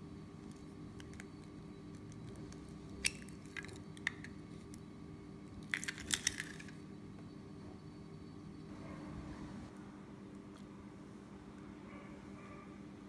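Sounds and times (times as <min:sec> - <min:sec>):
steady low hum: 0:00.0 - 0:13.0
eggshell cracking clicks: 0:00.9 - 0:04.8, 0:05.6 - 0:06.8.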